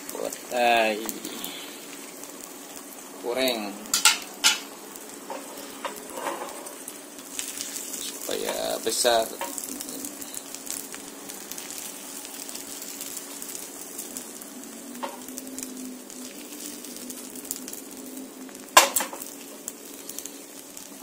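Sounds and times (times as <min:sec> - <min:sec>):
egg sizzling in hot oil: 0:00.0 - 0:21.0
pan knocking on stove grate: 0:03.9 - 0:04.7, 0:18.8 - 0:19.2.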